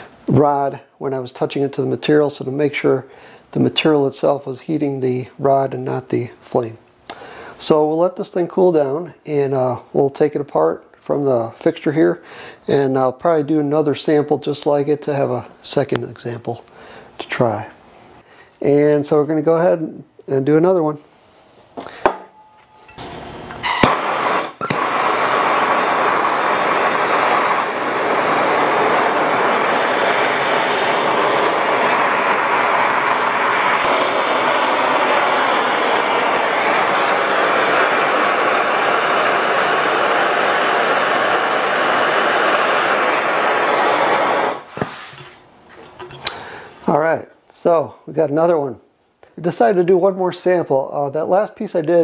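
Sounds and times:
gas torch hissing flame: 0:22.9 - 0:45.4.

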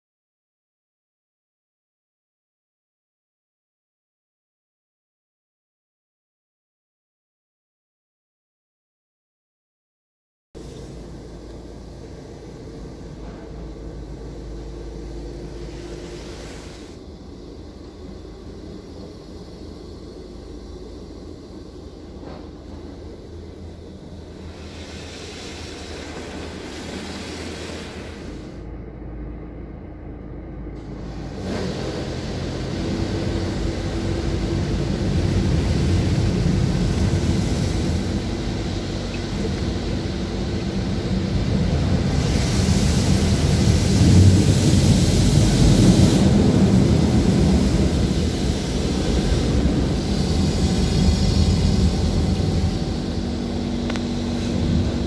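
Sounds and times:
water spraying on car: 0:10.6 - 0:28.6, 0:30.8 - 0:55.0
car wash machinery rumble: 0:10.6 - 0:55.0.

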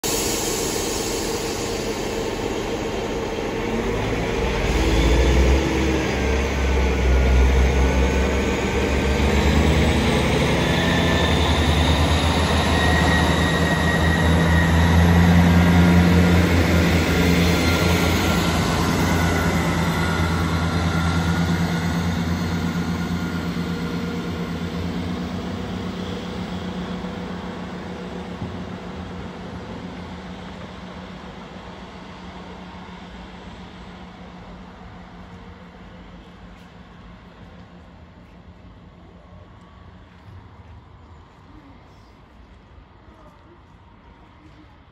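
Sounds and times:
high whine: 0:00.0 - 0:30.7
diesel train engines droning: 0:00.0 - 0:44.9.

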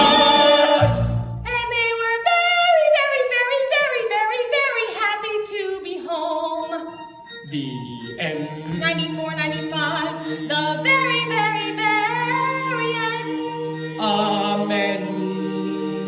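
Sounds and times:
group of voices singing: 0:00.0 - 0:01.3, 0:07.5 - 0:16.0.

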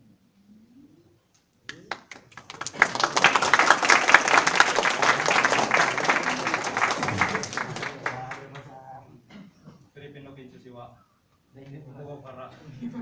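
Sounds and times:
audience applauding: 0:01.7 - 0:08.7.

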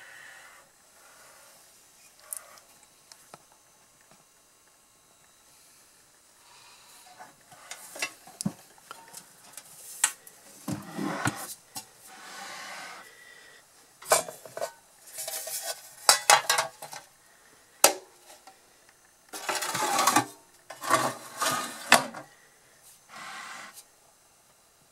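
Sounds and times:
metal pan scraping: 0:19.4 - 0:22.2.

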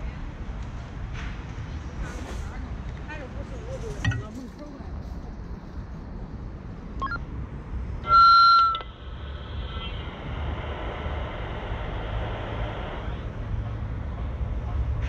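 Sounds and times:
keypad beeps: 0:07.0 - 0:07.2
radio static hiss: 0:09.0 - 0:13.7.

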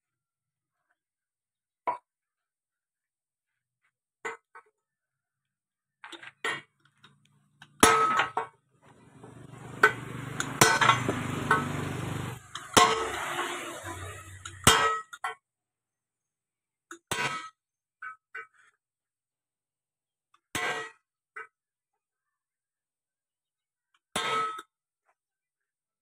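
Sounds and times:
steady hum and rushing noise: 0:09.0 - 0:14.6
hammer clanging on steel: 0:09.0 - 0:14.9.

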